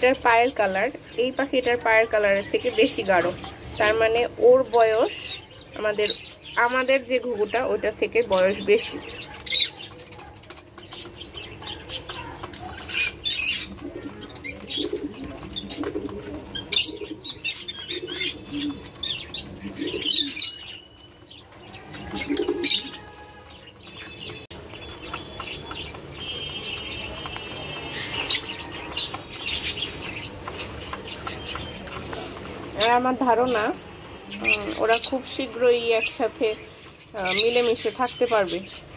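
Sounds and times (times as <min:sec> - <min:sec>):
doves cooing: 0:00.0 - 0:38.9
doves flapping wings: 0:09.4 - 0:32.8.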